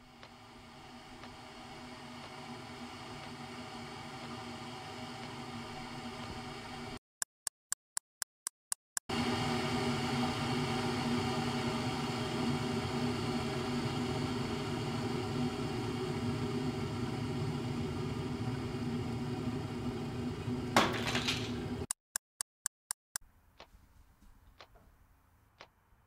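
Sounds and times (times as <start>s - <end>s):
kitchen appliance humming: 0.0s - 7.0s, 9.1s - 21.9s.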